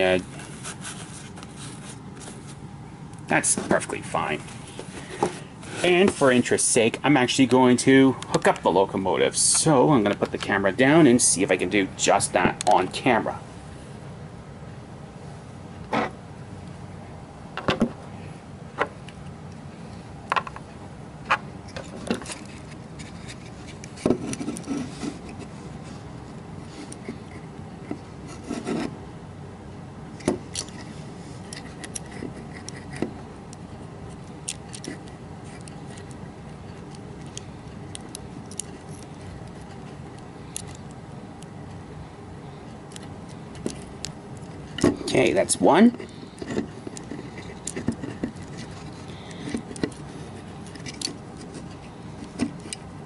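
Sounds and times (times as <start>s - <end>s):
plastic and metal parts clicking: 34.1s - 41.0s, 46.0s - 52.9s.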